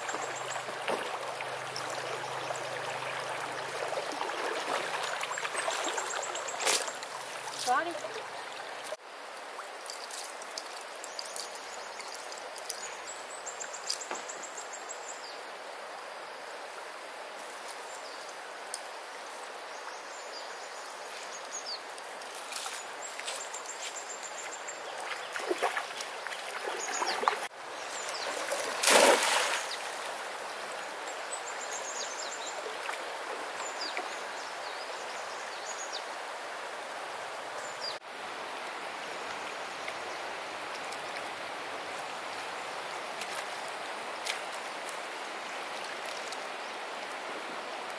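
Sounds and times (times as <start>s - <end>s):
birds chirping: 0.0s - 9.0s, 26.5s - 30.0s
river water rushing: 0.0s - 9.8s, 24.6s - 47.9s.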